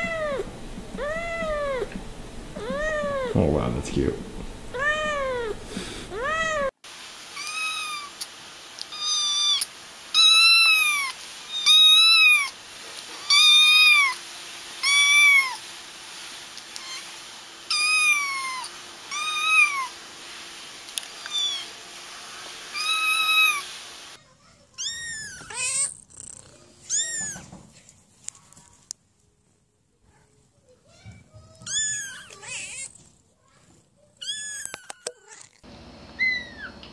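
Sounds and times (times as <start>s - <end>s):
kittens meowing: 0.0s - 2.0s, 2.6s - 3.4s, 4.7s - 6.7s, 7.4s - 8.2s, 8.8s - 12.6s, 13.2s - 14.2s, 17.7s - 20.0s, 21.2s - 21.8s, 22.7s - 23.7s, 26.9s - 27.5s, 36.2s - 36.8s.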